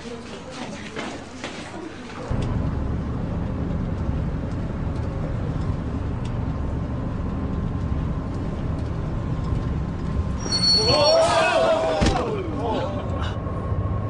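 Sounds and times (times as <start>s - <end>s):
loud steady low rumble: 2.3s - 10.4s.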